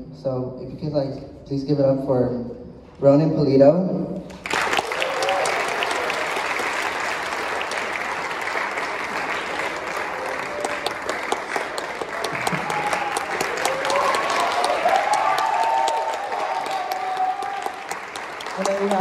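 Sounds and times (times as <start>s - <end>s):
audience applauding: 4.4s - 19.0s.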